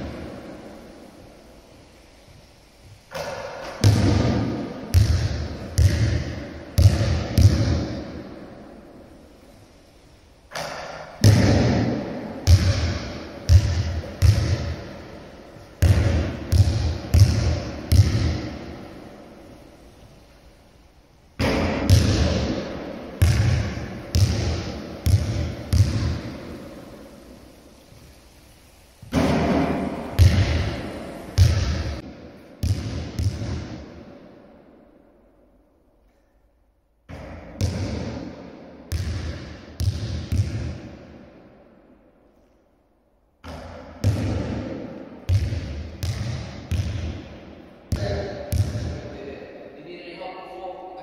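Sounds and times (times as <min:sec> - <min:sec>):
basketball bouncing on hall floor: 0:00.0 - 0:01.2, 0:03.1 - 0:09.1, 0:10.5 - 0:20.1, 0:21.4 - 0:27.3, 0:29.0 - 0:35.0, 0:37.0 - 0:42.4, 0:43.4 - 0:49.2
basketball hitting hoop: 0:03.1 - 0:08.3, 0:10.5 - 0:15.0, 0:15.8 - 0:18.7, 0:21.4 - 0:26.6, 0:29.1 - 0:34.0, 0:37.1 - 0:41.2, 0:43.4 - 0:49.0.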